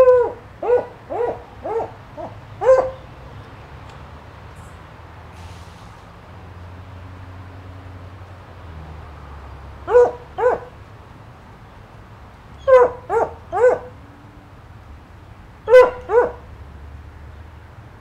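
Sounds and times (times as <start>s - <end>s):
dog barking: 0.0s - 3.1s, 9.8s - 10.8s, 12.6s - 14.0s, 15.7s - 16.4s.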